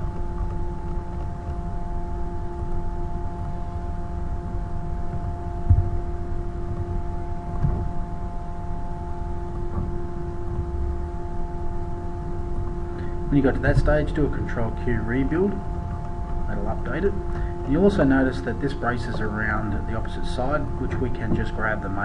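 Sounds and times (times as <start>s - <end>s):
background hum and rumble: 0.0s - 22.0s
constant held tones: 0.0s - 22.0s
low thump: 5.1s - 6.0s, 7.6s - 7.9s.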